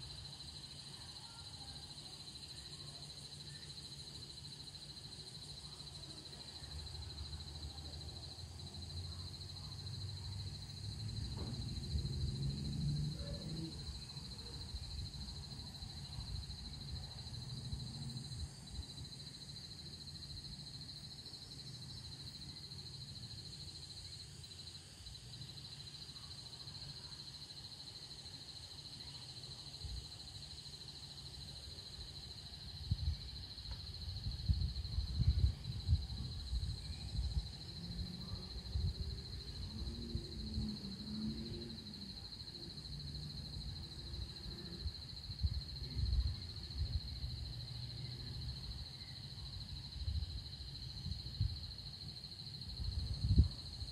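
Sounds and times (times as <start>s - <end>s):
wind buffeting microphone: 34.0s - 37.6s, 52.8s - 53.9s.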